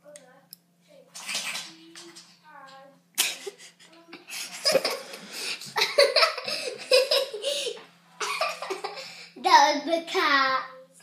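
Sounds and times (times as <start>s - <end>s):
child giggling and laughing: 3.2s - 9.3s.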